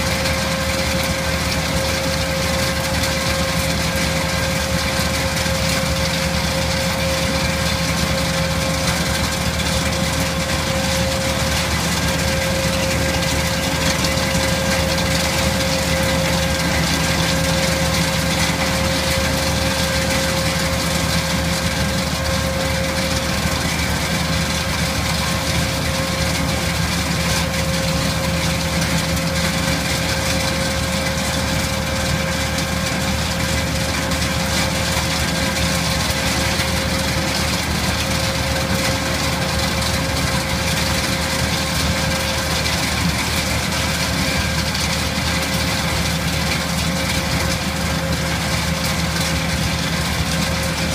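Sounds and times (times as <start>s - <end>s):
tractor engine running: 0.0s - 50.9s.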